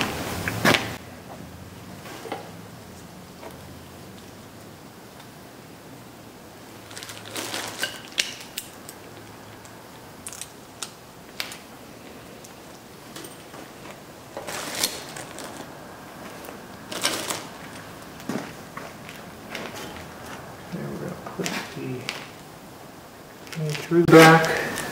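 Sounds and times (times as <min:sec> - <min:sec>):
metal tools clinking: 0:07.4 - 0:08.6, 0:13.1 - 0:13.7.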